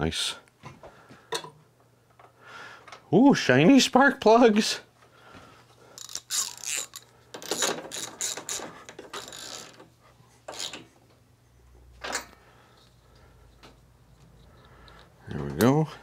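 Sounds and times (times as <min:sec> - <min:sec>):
socket ratchet clicking: 0:06.0 - 0:09.8.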